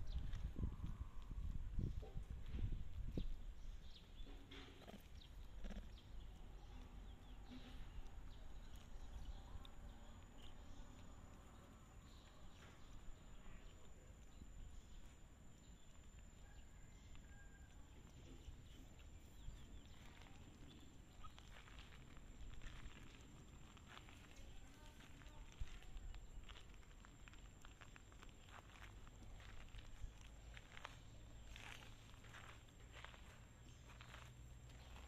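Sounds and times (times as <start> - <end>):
faint scuffs and ticks: 17.1 - 35.0.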